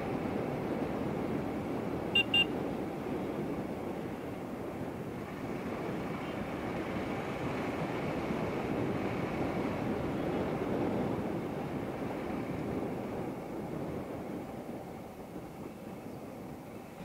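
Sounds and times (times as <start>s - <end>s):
horn beeps: 2.2s - 2.5s.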